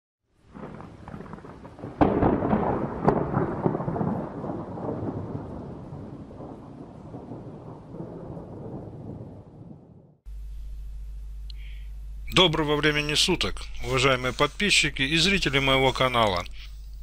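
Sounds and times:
rolling thunder rumble: 0:00.4 - 0:10.2
thunder cracks: 0:00.4 - 0:10.2.

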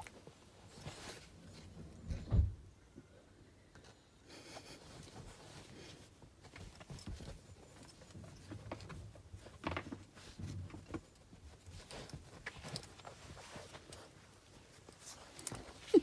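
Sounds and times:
puppy scrabbling on upholstery: 0:04.9 - 0:15.8.

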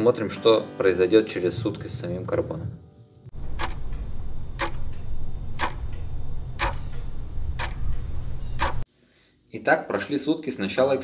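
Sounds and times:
clock ticking: 0:03.3 - 0:08.8
steady low hum: 0:03.3 - 0:08.8.

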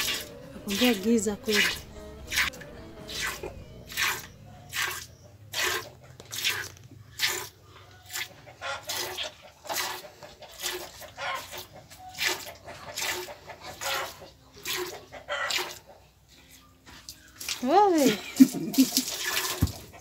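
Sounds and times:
milk squirting into a jug: 0:04.7 - 0:15.8, 0:17.1 - 0:20.0.

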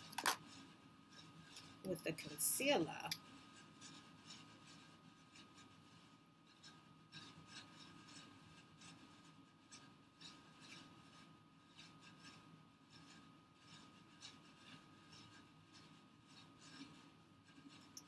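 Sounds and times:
faint steady hum: 0:00.0 - 0:18.0
applicator brushing on skin: 0:01.5 - 0:03.2.

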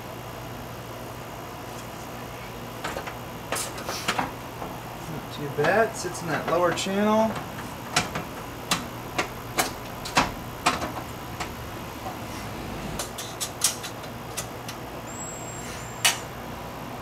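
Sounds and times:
fan assembly knocking and clicking: 0:02.8 - 0:04.8, 0:05.6 - 0:12.2.

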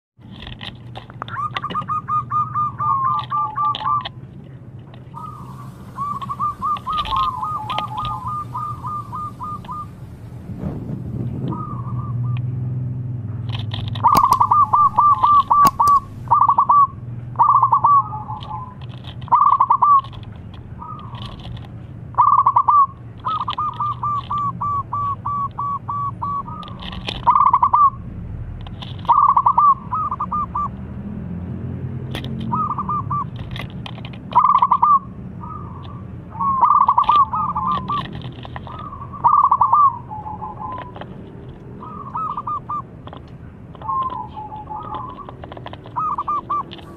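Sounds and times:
dove cooing: 0:01.2 - 0:04.2, 0:05.1 - 0:10.4, 0:11.3 - 0:12.6, 0:13.8 - 0:21.6, 0:22.2 - 0:28.0, 0:29.0 - 0:30.8, 0:32.3 - 0:46.9
steady low hum: 0:04.1 - 0:26.6.

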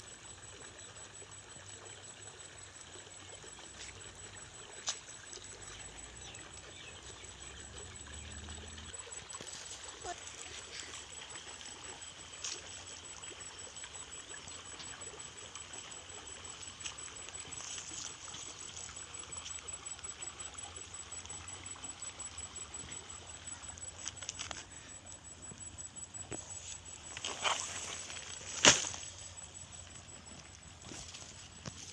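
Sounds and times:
water trickling in a stream: 0:00.0 - 0:31.9
rustle: 0:08.2 - 0:15.2, 0:16.4 - 0:20.3, 0:22.7 - 0:25.6, 0:26.3 - 0:31.9.

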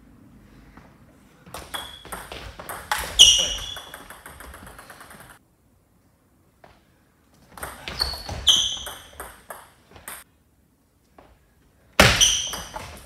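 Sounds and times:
table tennis ball pinging: 0:01.5 - 0:05.4, 0:07.6 - 0:10.2, 0:12.0 - 0:13.0.

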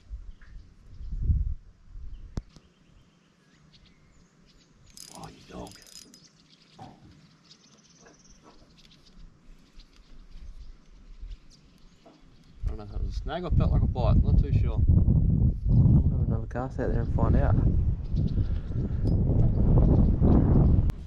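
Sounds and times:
birds chirping: 0:02.1 - 0:13.5, 0:17.0 - 0:21.0
insects chirping: 0:02.8 - 0:12.8.

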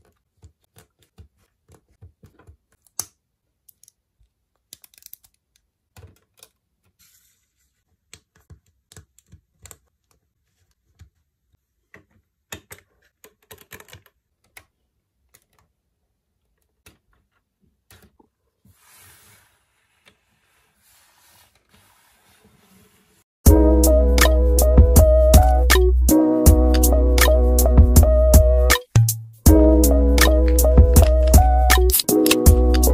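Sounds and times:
plastic bricks clicking: 0:01.8 - 0:06.6.

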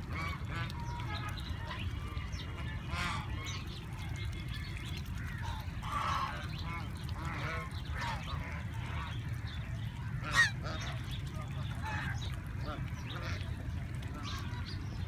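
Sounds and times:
geese honking: 0:10.2 - 0:10.9.

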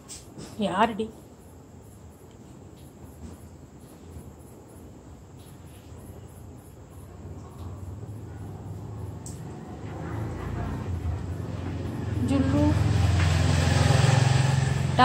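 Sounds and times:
crickets chirping: 0:00.0 - 0:15.0.

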